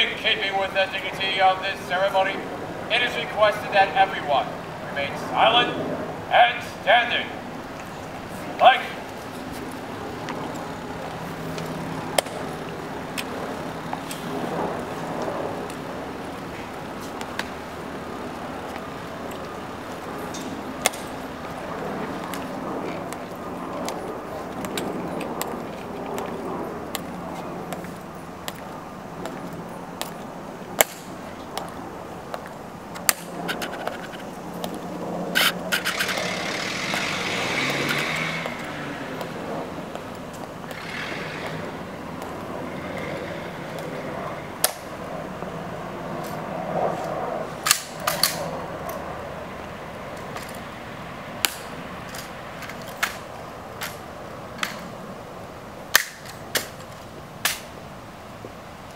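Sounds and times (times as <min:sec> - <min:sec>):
steady background hum: 0:00.0 - 0:58.9
dress shoes clicking on stone: 0:09.0 - 0:14.3, 0:15.0 - 0:17.6, 0:18.2 - 0:42.4.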